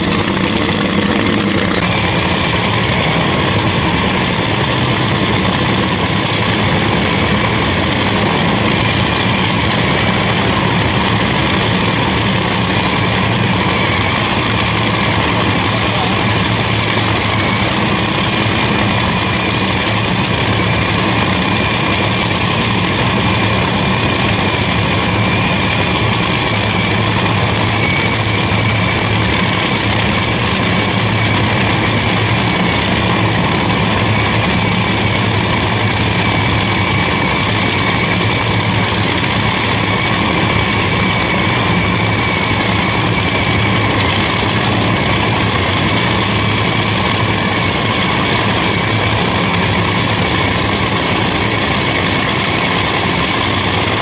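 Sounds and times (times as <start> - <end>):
engine idling: 0.0 - 54.0.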